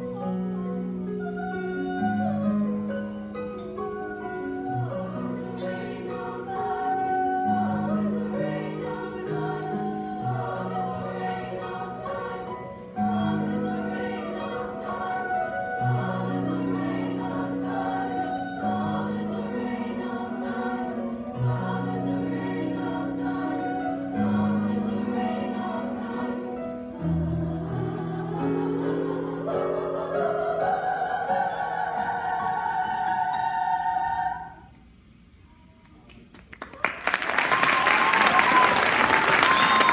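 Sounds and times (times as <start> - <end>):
women's choir singing: 3.9 - 34.8.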